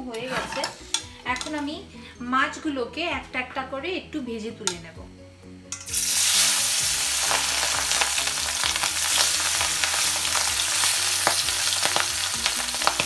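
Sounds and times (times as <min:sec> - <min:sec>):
fish sizzling in hot oil: 0:05.8 - 0:13.0.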